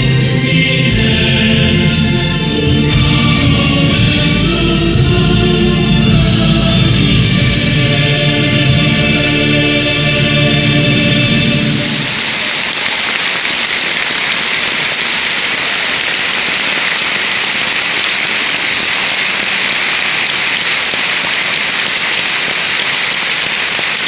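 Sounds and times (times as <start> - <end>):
music with choir: 0.0 - 12.2
audience applauding: 7.6 - 24.0.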